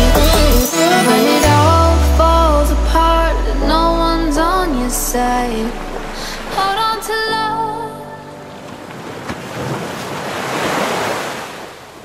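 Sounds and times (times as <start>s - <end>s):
person singing: 0.0s - 8.4s
ocean waves breaking on beach: 5.4s - 12.0s.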